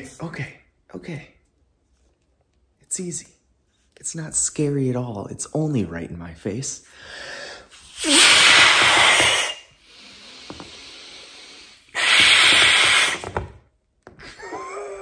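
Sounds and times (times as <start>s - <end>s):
man blowing into glove: 7.8s - 9.8s, 10.8s - 13.5s.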